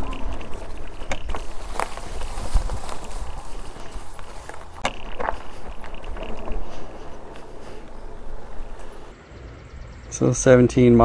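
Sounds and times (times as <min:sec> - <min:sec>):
knocks and rattles: 0:00.0 - 0:07.5
electric bike rumbling over rough ground: 0:00.0 - 0:09.1.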